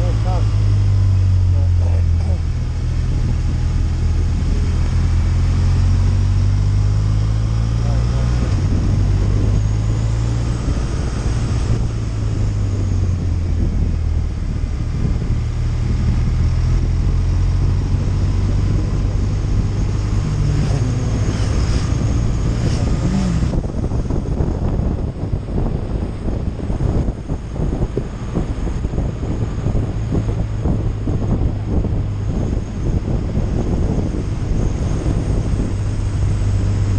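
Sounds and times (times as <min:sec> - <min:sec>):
motorcycle engine cruising: 0:00.0 - 0:36.9
wind noise on microphone: 0:00.0 - 0:36.9.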